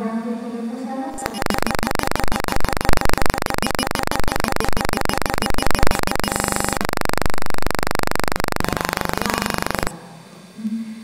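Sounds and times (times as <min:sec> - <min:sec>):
loud electrical buzz: 0:01.1 - 0:09.9.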